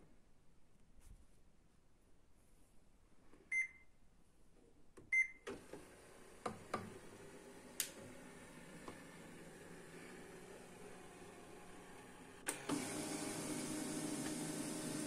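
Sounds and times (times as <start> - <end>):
printer mechanism whirring: 5.5 - 15.0.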